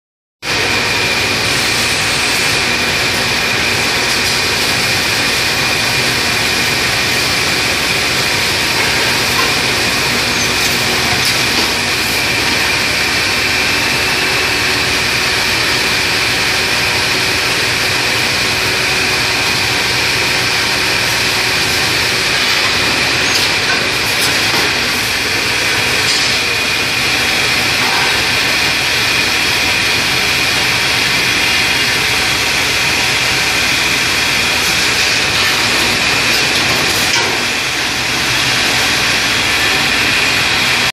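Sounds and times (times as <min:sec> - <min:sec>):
washing machine hiss and whine: 0:00.5 - 0:40.9.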